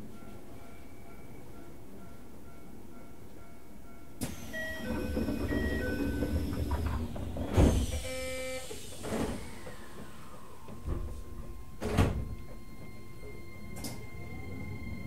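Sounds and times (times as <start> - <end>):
train chime tones: 0.0 - 6.5, 11.1 - 15.0
sliding doors closing with thud: 4.2 - 15.0.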